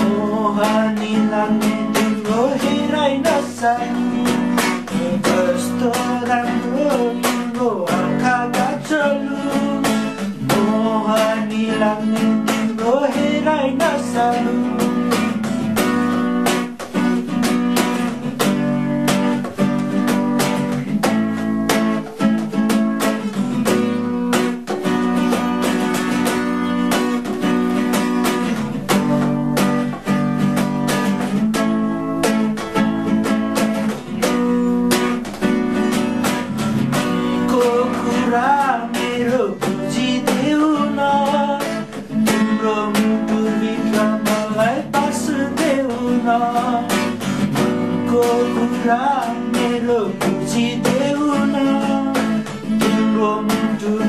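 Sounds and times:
wavering wordless vocal: 0.0s - 15.4s, 37.2s - 54.0s
acoustic guitar strumming: 0.0s - 54.0s.

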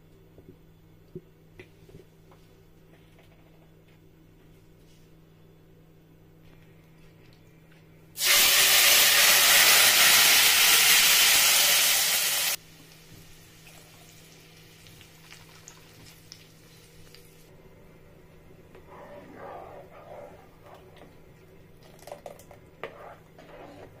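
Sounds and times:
sauce sizzling in hot oil: 8.2s - 17.4s
faint crackles of frying sauce: 12.1s - 17.5s.

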